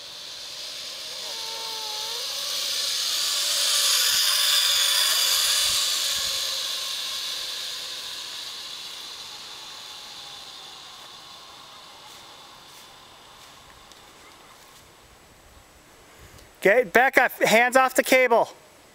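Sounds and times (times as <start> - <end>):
zipline pulley whirring on cable: 0.0 - 15.0.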